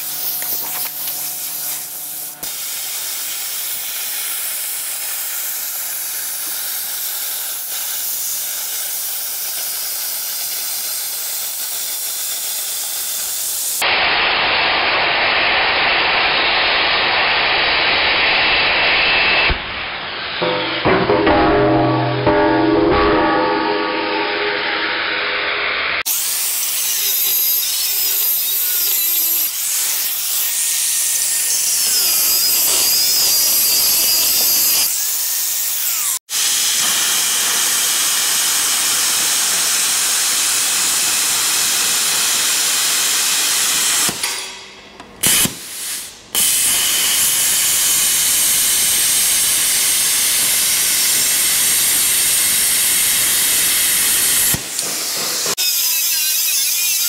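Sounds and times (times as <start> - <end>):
angle grinder cutting steel: 20.1 - 44.6, 46.4 - 57.0.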